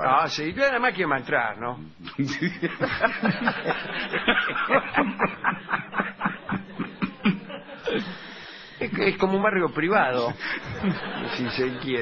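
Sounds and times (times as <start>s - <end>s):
people laughing: 2.2s - 8.4s, 10.0s - 12.0s.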